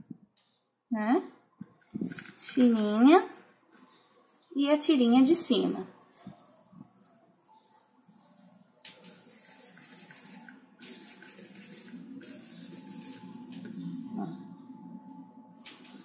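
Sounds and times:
hands rubbing clay: 8.2 - 13.3.

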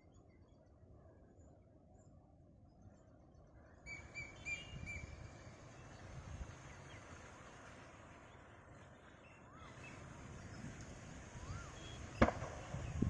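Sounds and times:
bird whistles: 3.8 - 5.2
wind on microphone: 10.2 - 13.0.

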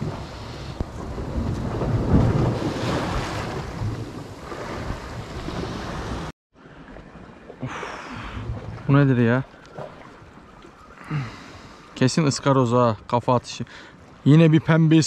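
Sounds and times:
waves on rocky shore: 0.0 - 6.3
wind buffeting microphone: 0.0 - 6.3.

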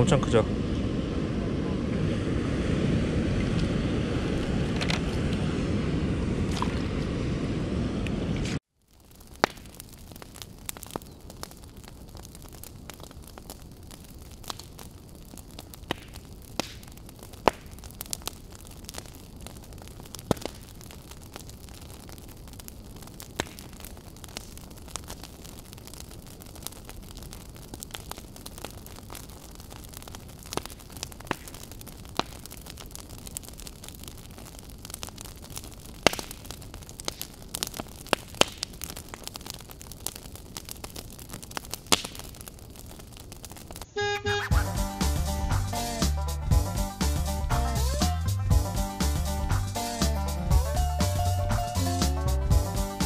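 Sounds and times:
low rumble of flame: 0.0 - 43.9, 44.5 - 53.0
campfire crackling: 0.0 - 53.0
burning wood popping: 3.5 - 5.5, 8.4 - 43.9, 44.5 - 53.0
steady hiss: 43.9 - 53.0.

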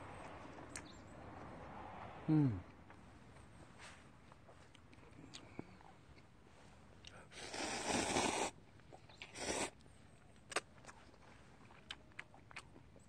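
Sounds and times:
noodles slurped: 7.4 - 9.8.

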